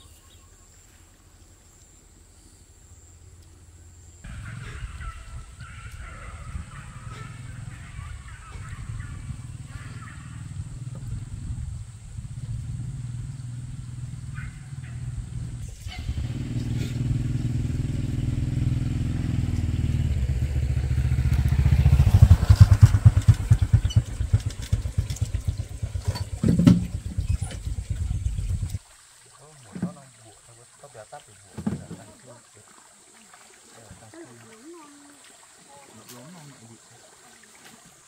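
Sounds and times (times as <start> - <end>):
motor scooter engine running: 4.3 - 28.7.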